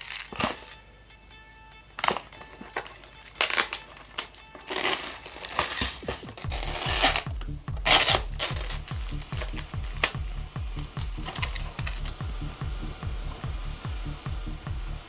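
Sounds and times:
plastic and paper packaging rustling: 0.0 - 0.8, 2.0 - 12.2
music with steady bass beat: 0.0 - 15.0.

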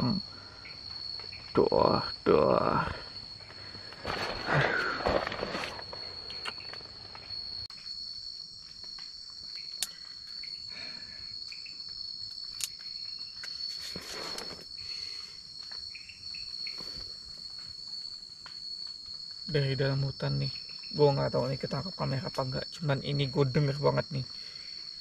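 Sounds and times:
night insects droning: 0.0 - 25.0.

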